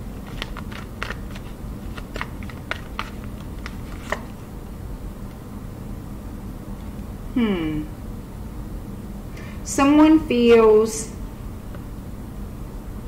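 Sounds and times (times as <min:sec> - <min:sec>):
cards being shuffled by hand: 0:00.0 - 0:04.4.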